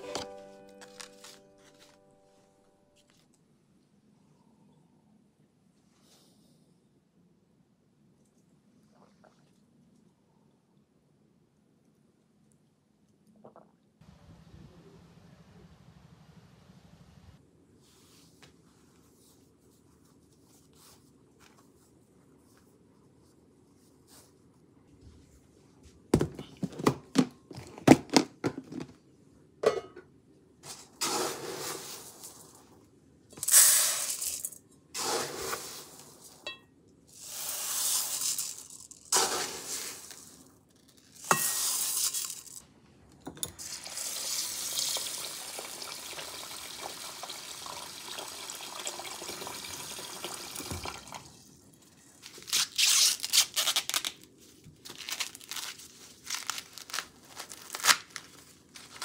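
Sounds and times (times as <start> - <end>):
rice pouring into a pot: 31.0 - 32.7, 33.4 - 36.4, 37.1 - 40.5, 41.2 - 42.6, 43.6 - 51.3
water running: 43.7 - 51.5
corn husks tearing: 54.9 - 59.0.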